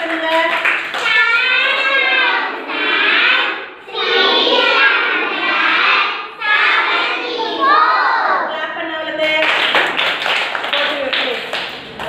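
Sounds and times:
children chanting in unison: 0.9 - 8.5.

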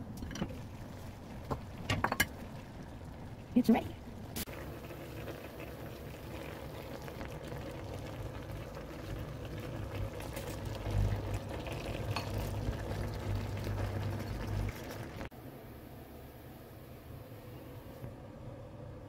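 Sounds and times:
sauce bubbling in a pan: 0.5 - 15.3.

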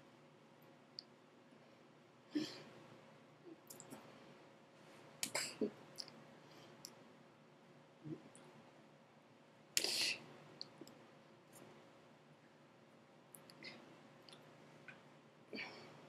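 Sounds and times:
faint steady hum: 0.0 - 16.0
soft clicks of hands and lips: 3.6 - 4.0.

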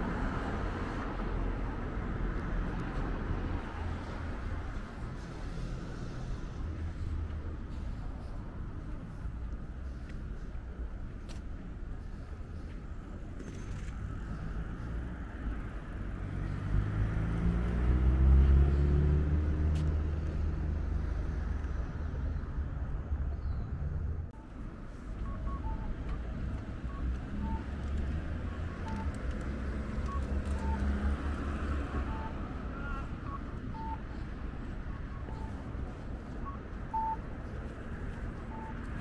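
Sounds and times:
traffic rumble: 0.0 - 39.0
vehicle accelerating past: 16.2 - 20.9
short high beeps: 30.0 - 34.2, 35.0 - 37.3, 38.4 - 38.8.

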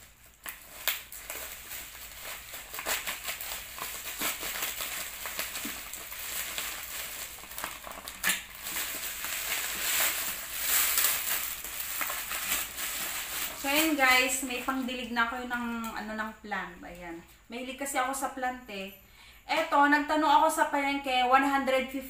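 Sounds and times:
plastic packaging crinkling: 0.0 - 15.8.

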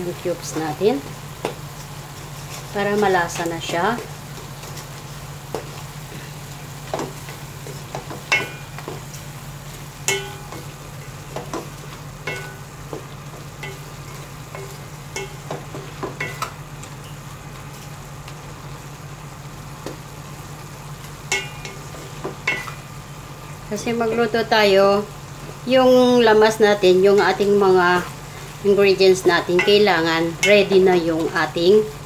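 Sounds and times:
faint frying sizzle: 0.0 - 32.0
steady low hum: 0.0 - 32.0
spatula knocking and scraping wok: 0.4 - 6.2, 6.8 - 18.0, 21.0 - 23.0, 26.2 - 32.0.

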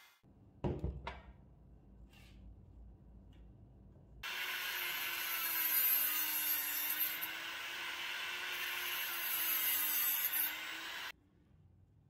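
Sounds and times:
rotary tool cutting metal rod: 4.3 - 11.1.

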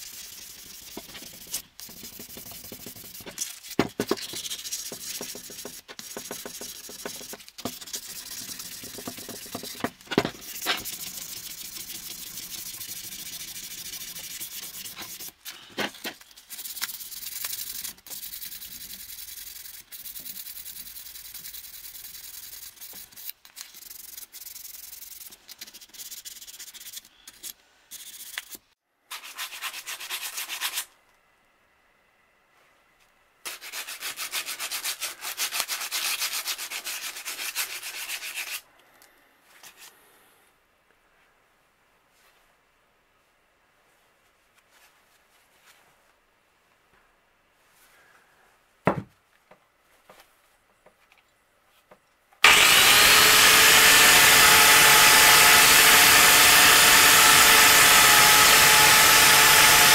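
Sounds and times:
sandpaper sanding metal: 0.0 - 15.4, 16.3 - 30.9, 33.5 - 38.6, 52.5 - 59.9.

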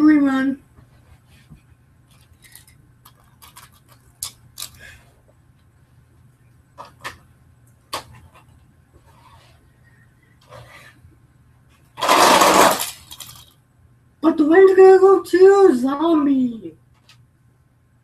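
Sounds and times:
low steady hum: 0.0 - 18.0
toy trucks clicking and knocking: 2.1 - 4.8, 12.0 - 13.6.

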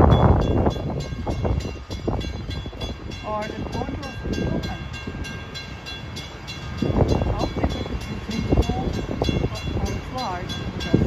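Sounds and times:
freight train rumbling past: 0.0 - 11.0.

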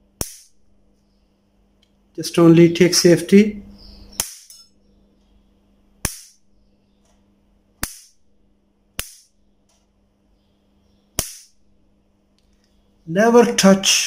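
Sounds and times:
faint steady hum: 0.0 - 14.0
sharp electric spark snaps: 0.2 - 0.6, 6.0 - 6.4, 7.8 - 8.2, 8.9 - 9.8, 11.1 - 11.6.

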